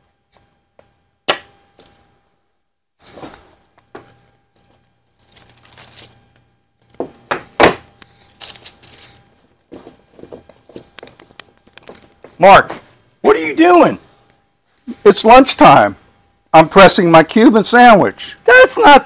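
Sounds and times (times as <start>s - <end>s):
rustling: 3.0s - 6.3s.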